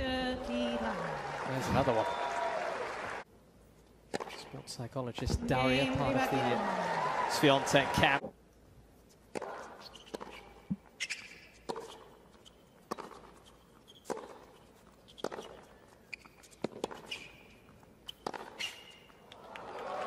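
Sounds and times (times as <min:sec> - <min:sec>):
tennis racquets hitting ball: 0:04.1 - 0:04.5, 0:09.3 - 0:19.4
shoes squeaking on court: 0:09.3 - 0:19.4.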